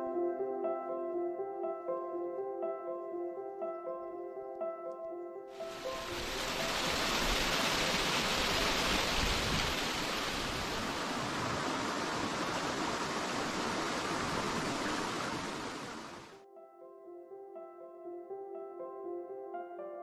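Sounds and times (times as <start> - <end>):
water running over gravel: 5.6 - 16.3.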